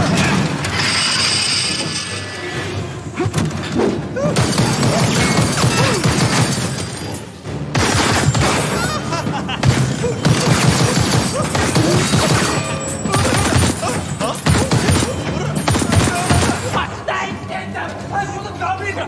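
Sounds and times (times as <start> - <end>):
rapid handgun fire: 4.4 - 6.8, 7.7 - 8.7, 9.6 - 15.1, 15.7 - 16.7.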